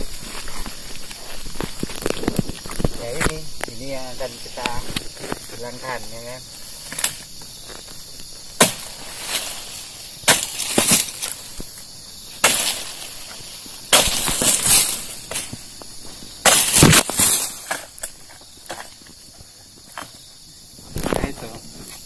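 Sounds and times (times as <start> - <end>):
palm frond cracking off: 0.0 - 3.8, 6.8 - 19.1
chisel blade striking palm fronds: 8.6 - 11.4, 12.4 - 15.6, 16.4 - 18.9.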